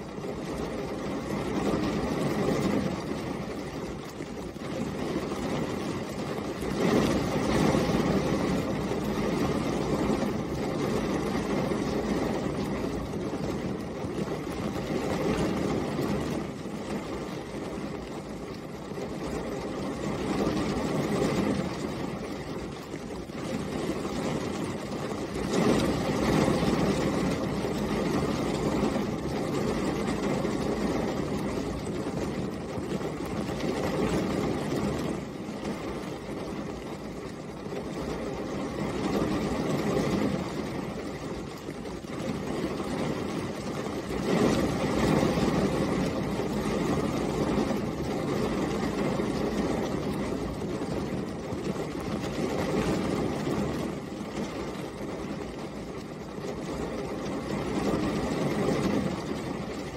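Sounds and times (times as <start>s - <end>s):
steady rain: 0.0s - 59.9s.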